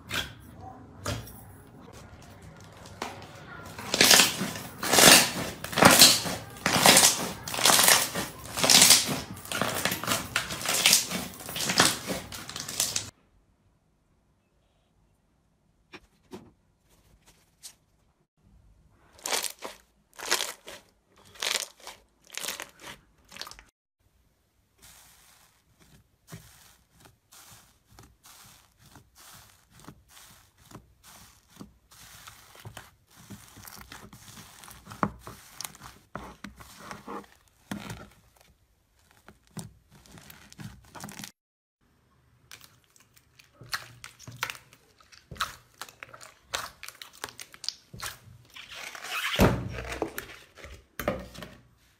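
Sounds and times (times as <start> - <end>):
slime squelching: 1.8 - 13.1, 19.0 - 23.7, 24.7 - 41.3, 42.2 - 51.0
foam slime crackling: 2.6 - 13.1, 19.1 - 23.7, 24.7 - 41.3, 42.5 - 50.2.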